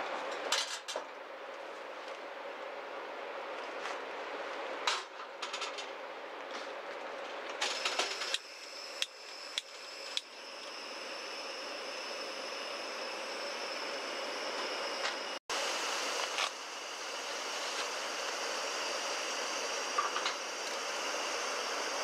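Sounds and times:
gas burner hissing: 7.6s - 22.0s.

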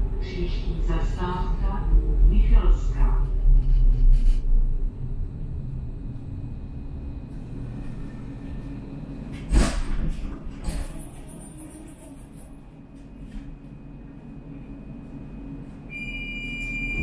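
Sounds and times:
tram humming while standing: 0.0s - 17.0s
tram rumbling: 0.0s - 17.0s.

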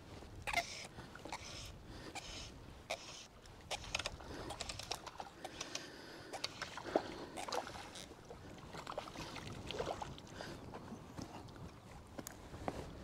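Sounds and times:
fish splashing in water: 6.3s - 10.2s.

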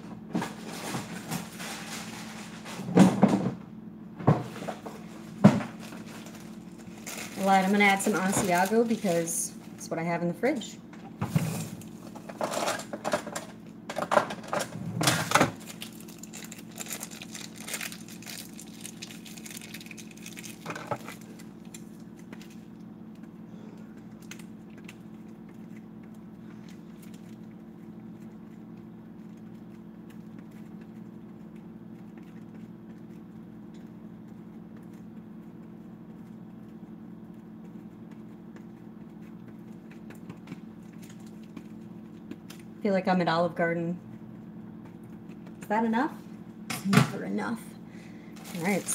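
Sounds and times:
plastic crinkling: 5.7s - 9.6s, 15.5s - 23.3s, 48.3s - 48.9s.

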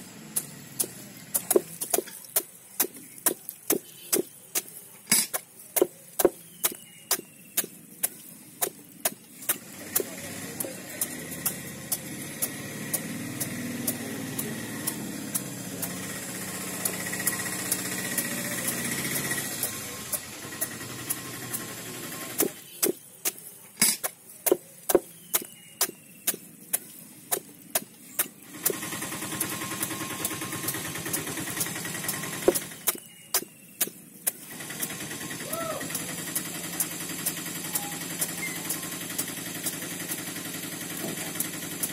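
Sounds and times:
knife chopping on wooden board: 0.8s - 16.0s, 22.4s - 28.8s
motor humming: 9.3s - 22.7s, 24.9s - 41.9s.

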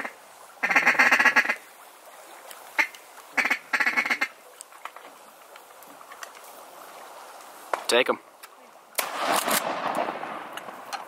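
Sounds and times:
duck call raspy quacking: 0.0s - 1.6s, 2.8s - 4.3s.

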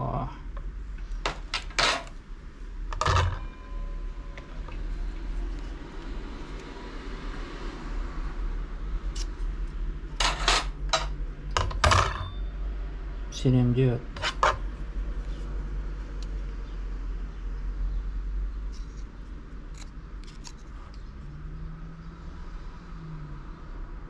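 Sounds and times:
metal brake parts clinking: 1.3s - 2.1s, 2.9s - 3.9s, 10.2s - 12.5s.

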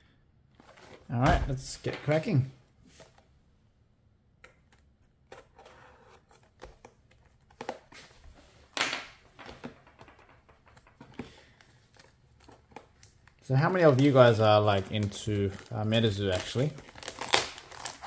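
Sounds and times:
plastic wrap rustling: 11.8s - 18.0s
knife cutting plastic film: 16.3s - 18.0s.

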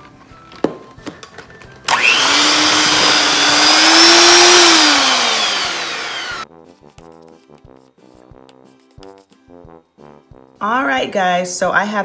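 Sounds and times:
electric hand mixer whining: 1.9s - 6.4s.

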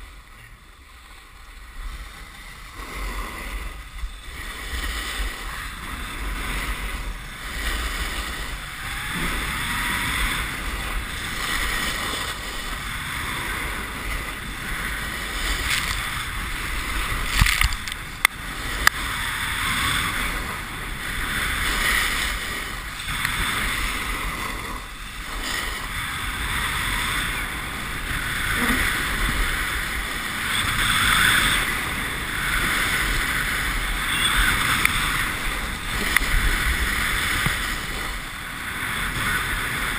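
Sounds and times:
snowboard scraping over snow: 0.0s - 39.9s
wind buffeting microphone: 1.5s - 39.9s.

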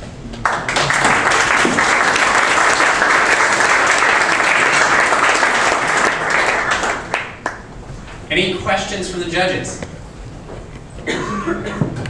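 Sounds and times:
audience applause: 0.4s - 7.7s.

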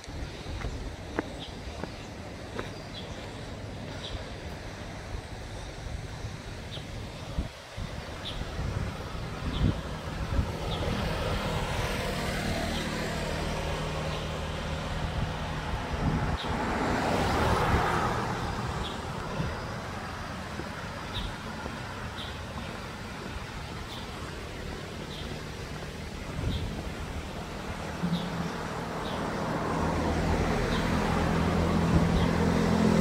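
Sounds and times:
road vehicle passing: 0.0s - 33.0s.

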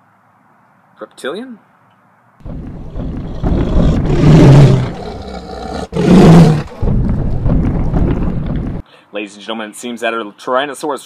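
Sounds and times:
low rumble: 2.4s - 5.3s, 5.9s - 8.8s
deep loud roar: 2.4s - 8.8s.

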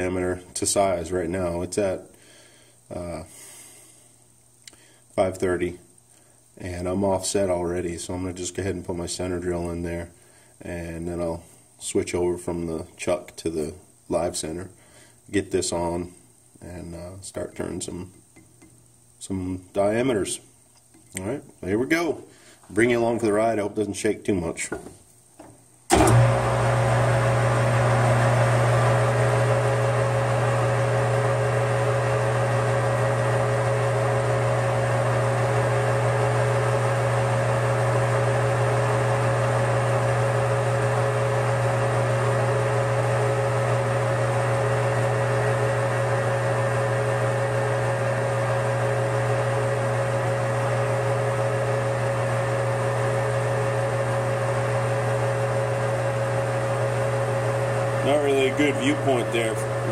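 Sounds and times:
metal lathe running: 25.9s - 29.0s, 56.2s - 59.9s.

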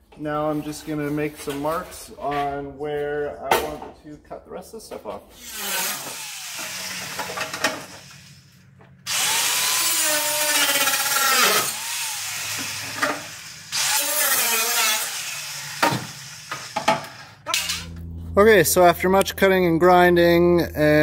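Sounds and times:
cutoff disc grinder cutting steel: 5.4s - 8.4s, 9.1s - 18.0s.

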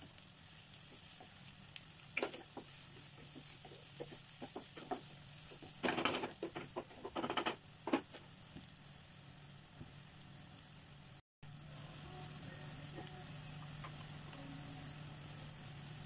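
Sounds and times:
onions sizzling in oil: 0.0s - 16.0s
wooden spatula scraping pan: 2.2s - 7.6s.

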